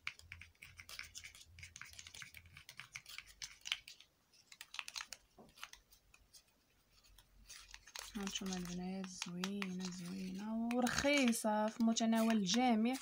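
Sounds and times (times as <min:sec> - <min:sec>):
metal spoon scraping plastic cup: 0:07.5 - 0:13.0.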